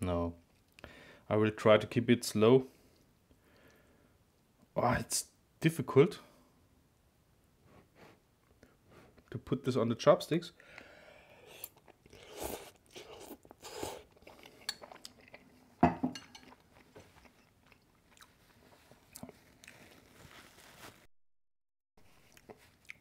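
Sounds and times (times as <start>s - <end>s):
quiet chewing: 10.7s - 20.6s, 22.0s - 23.0s
slurping noodles: 11.3s - 14.8s.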